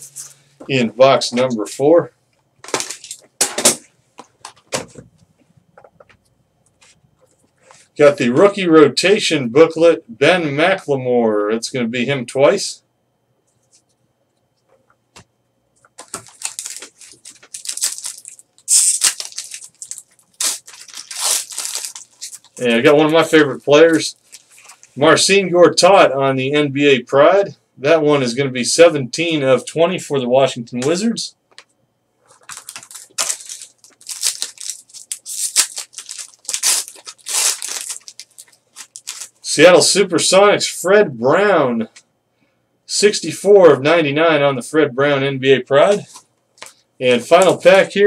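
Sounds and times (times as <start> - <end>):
foil wrapper crinkling and tearing: 16.0 - 25.0, 32.3 - 39.4.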